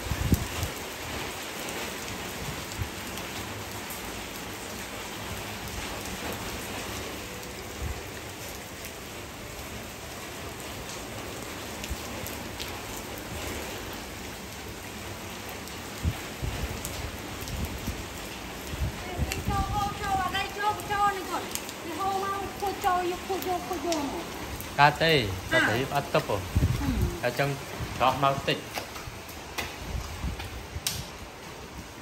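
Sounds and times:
rain on wet paving: 0.0s - 32.0s.

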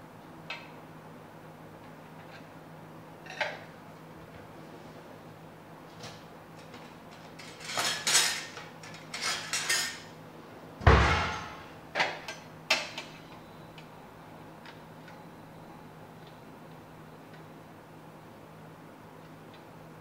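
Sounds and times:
kitchen utensils clattering: 7.3s - 10.1s
heavy thud: 10.8s - 11.7s.

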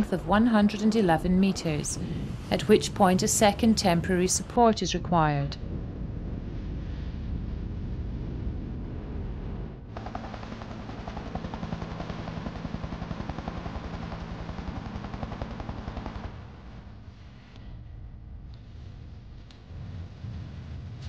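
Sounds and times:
helicopter rotor blades chopping: 0.0s - 5.4s, 9.9s - 16.8s
helicopter engine hum: 0.0s - 6.0s, 9.9s - 17.1s
wind rumble: 0.0s - 21.0s.

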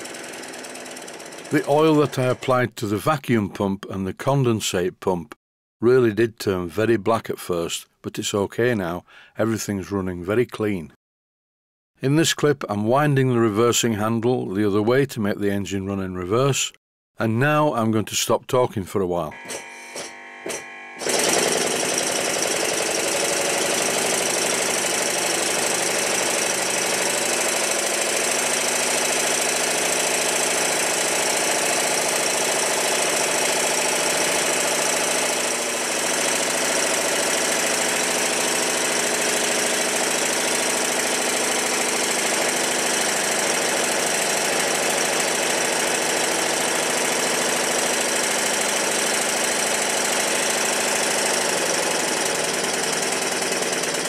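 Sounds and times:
model steam engine running: 0.0s - 2.4s, 21.0s - 54.0s.

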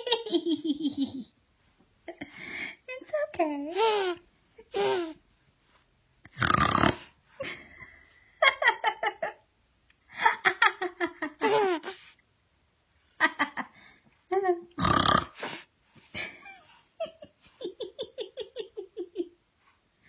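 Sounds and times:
infant laughing: 3.7s - 5.2s, 11.4s - 12.1s.

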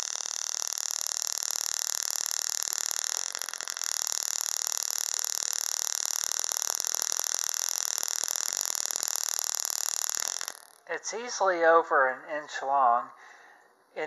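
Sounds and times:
tesla coil arc hissing: 0.0s - 11.0s.

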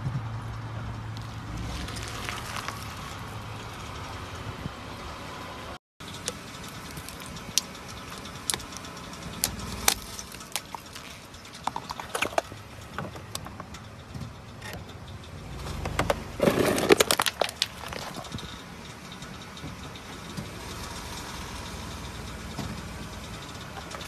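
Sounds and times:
car tyre crushing crunchy objects: 1.1s - 4.1s, 6.1s - 18.8s.

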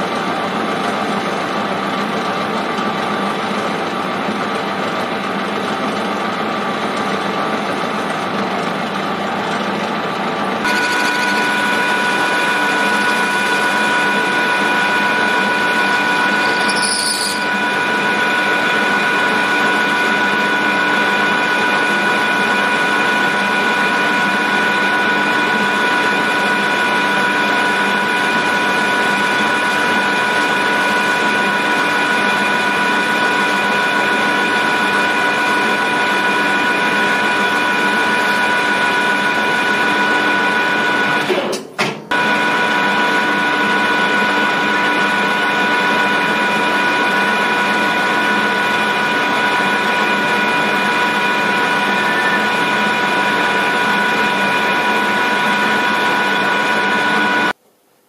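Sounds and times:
metal lathe high-pitched whine: 10.6s - 41.3s, 42.1s - 57.6s.

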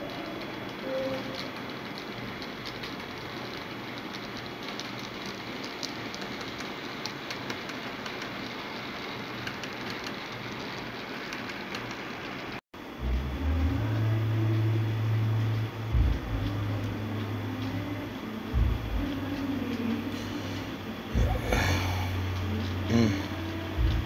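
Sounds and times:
model train wheels rolling on rails: 0.0s - 12.6s
steady low hum: 0.0s - 24.0s.

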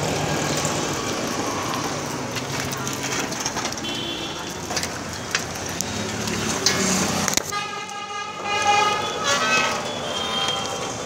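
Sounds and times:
street traffic: 0.0s - 11.0s
steady horn tone: 7.5s - 10.8s.

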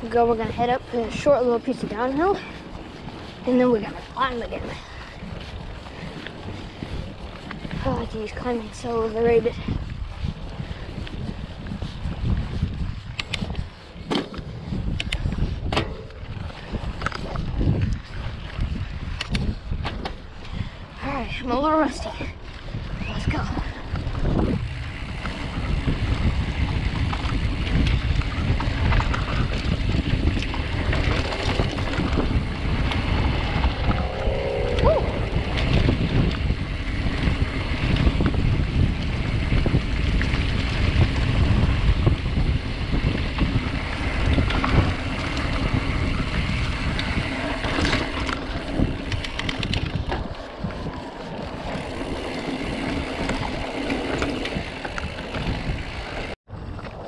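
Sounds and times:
wind noise on microphone: 0.0s - 57.0s
bike knocks and rattles: 13.1s - 20.4s.

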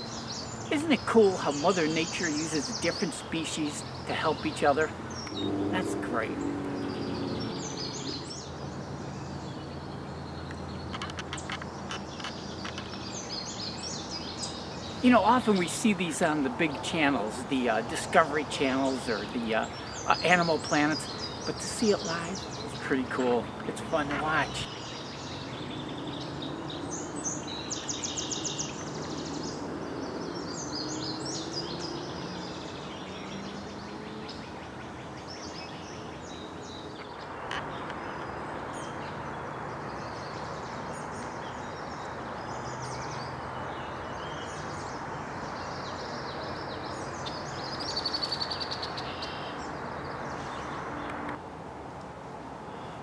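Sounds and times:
birds chirping and singing: 0.0s - 51.2s
steady background hiss: 13.1s - 25.9s.

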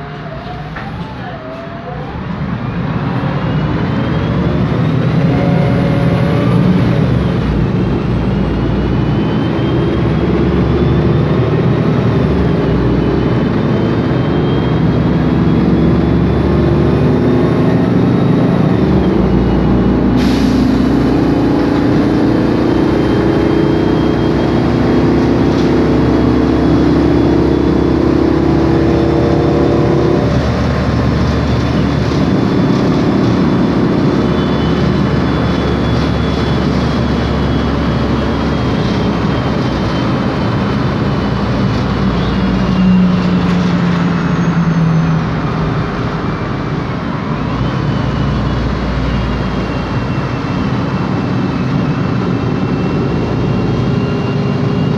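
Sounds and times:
bus engine running: 0.0s - 54.9s
high differential whine: 0.0s - 54.9s
air hissing: 20.2s - 21.3s.

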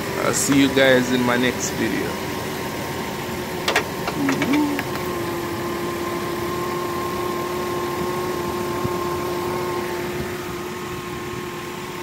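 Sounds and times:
truck engine idling: 0.0s - 5.9s
constant whine: 0.0s - 12.0s.

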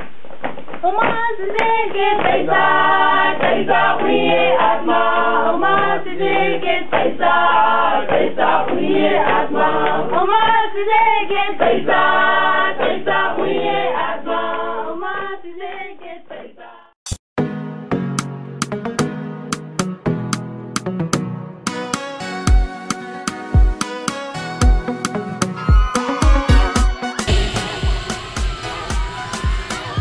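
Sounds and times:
choir singing: 1.8s - 16.8s, 25.6s - 30.0s.

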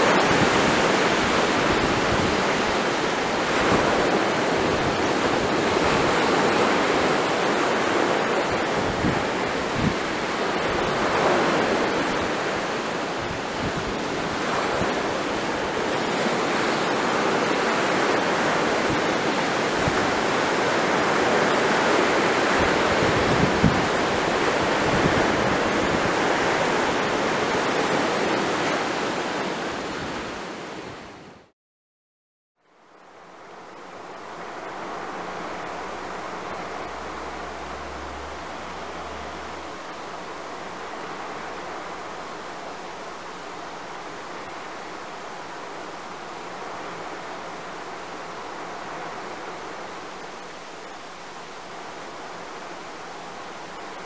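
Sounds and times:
surf washing over pebbles: 0.0s - 30.8s
wind buffeting microphone: 0.0s - 31.2s.

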